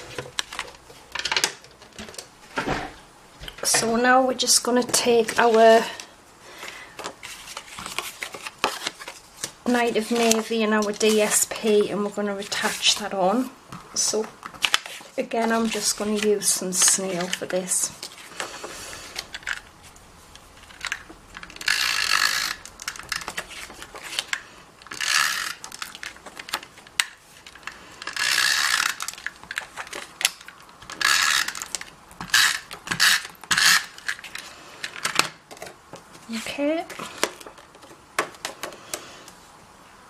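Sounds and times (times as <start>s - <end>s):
tape runner ratcheting whirr: 21.5s - 23.3s, 28.0s - 29.3s.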